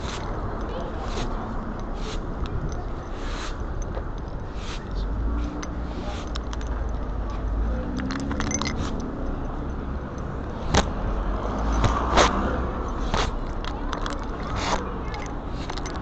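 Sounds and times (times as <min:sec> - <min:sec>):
street traffic rumble: 0:00.0 - 0:16.0
vehicle engine passing: 0:04.9 - 0:16.0.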